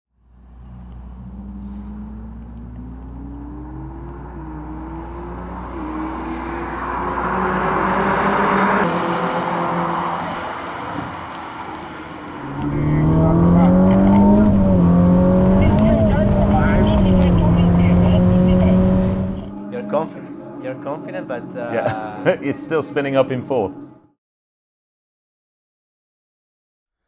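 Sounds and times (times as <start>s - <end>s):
deeper engine note: 0.1s - 8.9s, 11.8s - 22.6s
car engine accelerating hard: 0.2s - 22.4s.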